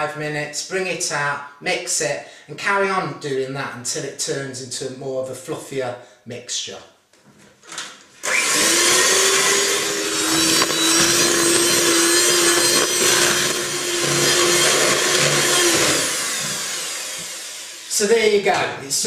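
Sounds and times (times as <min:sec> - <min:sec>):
electric hand mixer whining: 0:08.2 - 0:18.1.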